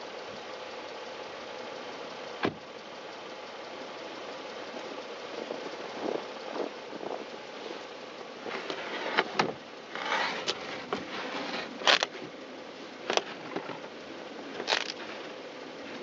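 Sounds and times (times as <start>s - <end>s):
steady background hiss: 0.0s - 16.0s
scraping and chipping ice: 9.9s - 12.2s, 14.6s - 15.2s.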